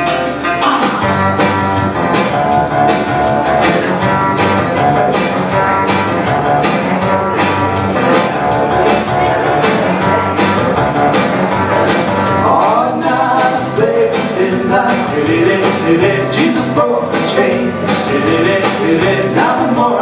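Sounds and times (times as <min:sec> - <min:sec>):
steady drum beat: 0:00.0 - 0:20.0.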